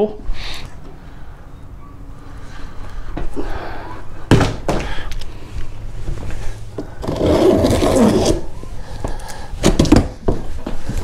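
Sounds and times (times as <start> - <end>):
carton scraping out of box: 7.0 - 8.5.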